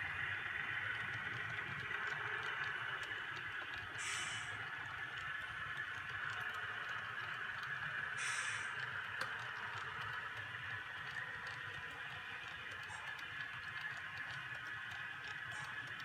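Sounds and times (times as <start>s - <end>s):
locomotive decoder hum: 0.0s - 16.0s
model train wheels ticking: 0.0s - 16.0s
brief hiss: 8.2s - 8.7s.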